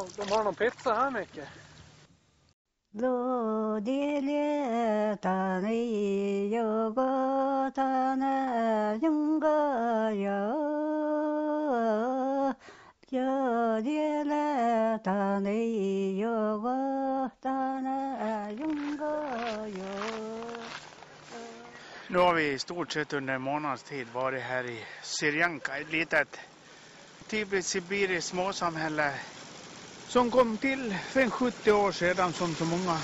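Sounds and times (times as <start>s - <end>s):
person singing long held notes: 15.5s - 22.0s.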